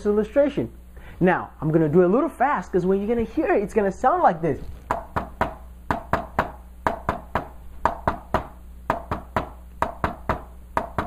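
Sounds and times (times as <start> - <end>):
hand tapping on a whiteboard: 4.9 - 11.0.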